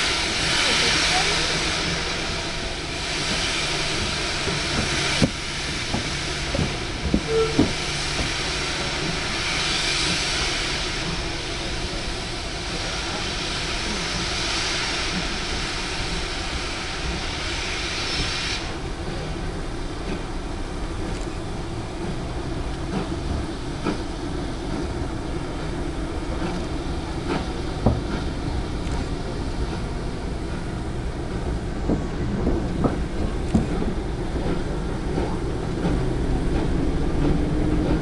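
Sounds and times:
steam hissing: 0.0 - 38.0
locomotive clanks: 3.0 - 9.4, 20.0 - 38.0.

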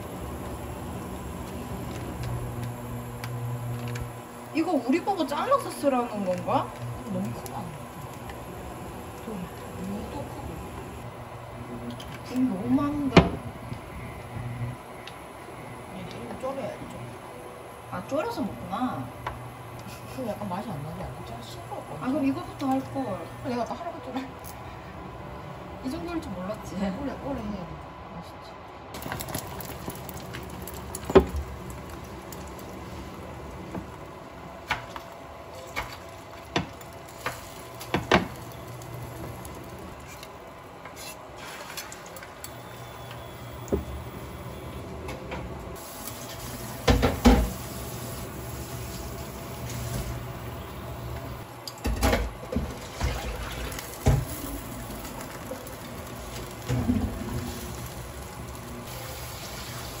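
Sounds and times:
chopsticks and spatula on pan: 34.6 - 43.3.

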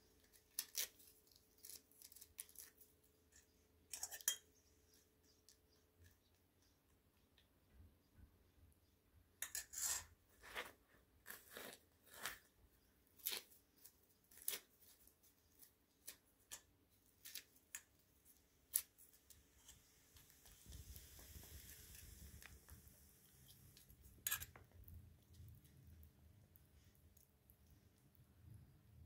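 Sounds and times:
dry flatbread tearing: 0.2 - 3.4, 9.6 - 16.6
faint steady hiss: 15.3 - 29.0.

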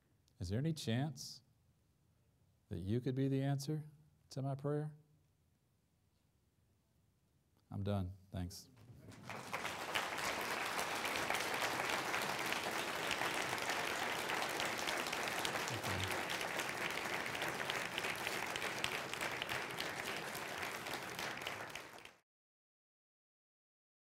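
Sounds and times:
audience applauding: 9.0 - 22.2.

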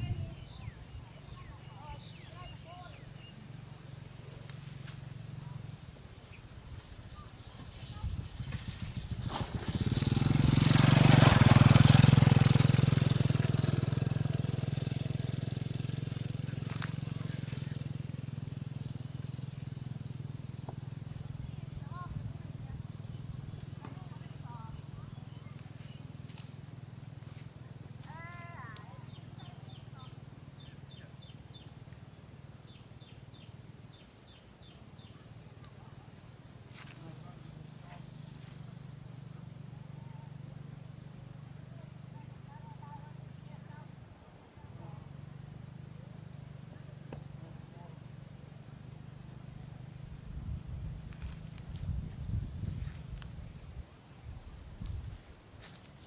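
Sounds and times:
small bird chirping: 0.0 - 9.1, 28.1 - 36.1
motorcycle passing by: 0.0 - 53.8
high insect drone: 0.0 - 56.0.

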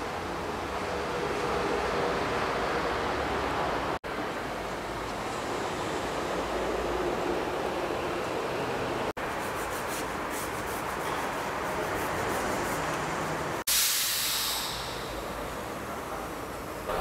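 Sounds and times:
steady workshop hiss: 9.2 - 17.0
compressed air burst: 13.6 - 15.8.

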